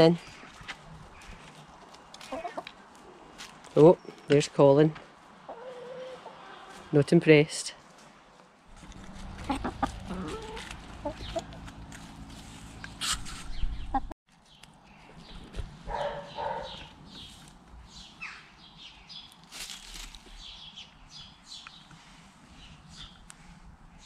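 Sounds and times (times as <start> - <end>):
chickens clucking: 1.2 - 3.2, 5.4 - 7.0, 8.7 - 11.9, 12.8 - 14.2.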